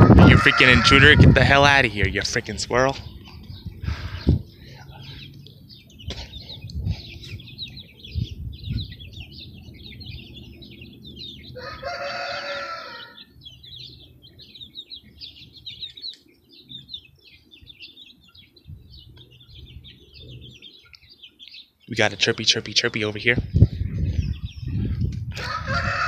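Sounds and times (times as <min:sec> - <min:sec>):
rooster crowing: 0:00.0 - 0:01.5, 0:11.5 - 0:13.4, 0:25.4 - 0:26.0
small birds twittering: 0:00.0 - 0:26.0.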